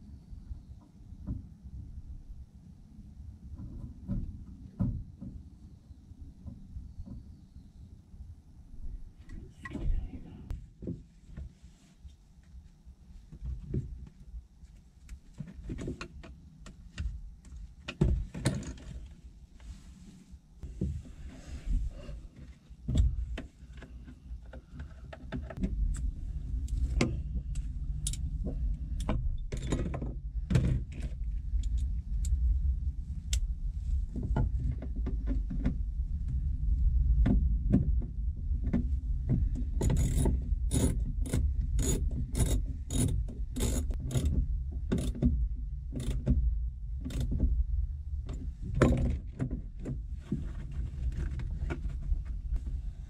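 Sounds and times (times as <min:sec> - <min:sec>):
low rumble: 0:00.0 - 0:10.8, 0:25.6 - 0:53.0.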